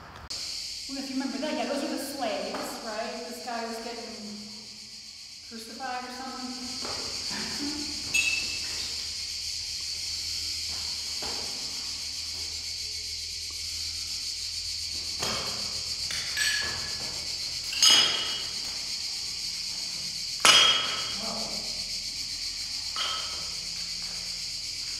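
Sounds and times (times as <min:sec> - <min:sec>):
insects droning: 0:00.0 - 0:24.9
sharp ringing knocks: 0:17.7 - 0:18.5, 0:20.4 - 0:21.2, 0:23.0 - 0:23.6.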